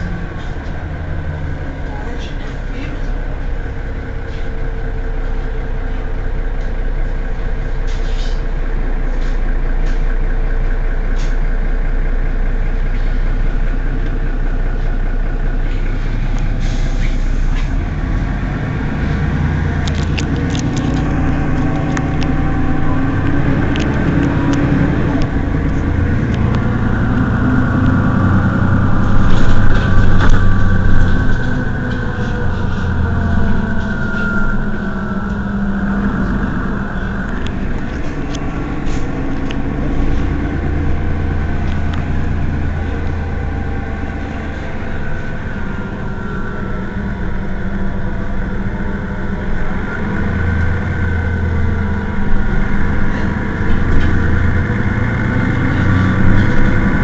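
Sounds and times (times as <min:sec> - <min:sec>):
bus engine idling: 0:00.0 - 0:57.0.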